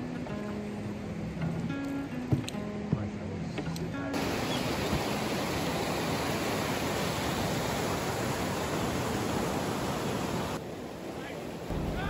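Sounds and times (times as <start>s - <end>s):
whitewater rushing: 4.1s - 12.0s.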